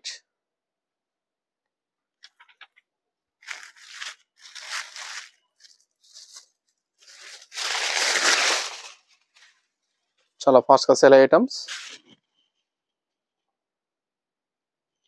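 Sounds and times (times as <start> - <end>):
fabric rustling: 3.4 - 9.7, 11.7 - 12.5.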